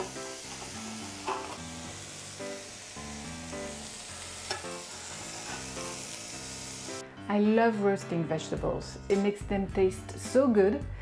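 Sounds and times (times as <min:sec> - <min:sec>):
roasted vegetables sizzling: 0:00.0 - 0:07.0
background music: 0:00.0 - 0:11.0.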